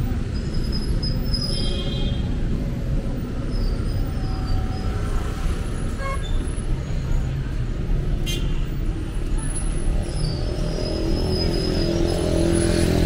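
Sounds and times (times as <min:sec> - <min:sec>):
passing cars rumble: 0:08.8 - 0:13.0.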